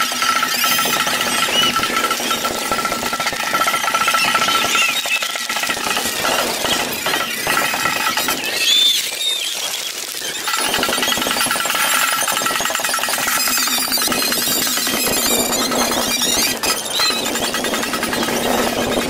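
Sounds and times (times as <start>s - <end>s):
sped-up horse hooves clattering: 0.0s - 19.0s
squeaky sped-up voices: 13.3s - 19.0s.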